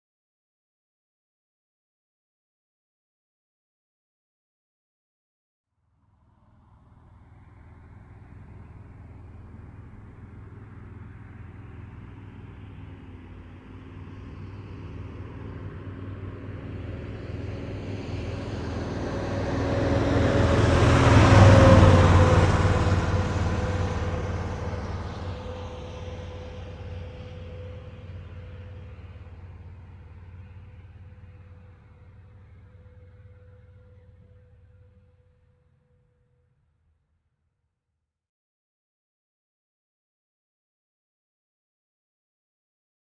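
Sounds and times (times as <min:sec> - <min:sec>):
road vehicle passing by: 0:06.0 - 0:36.7.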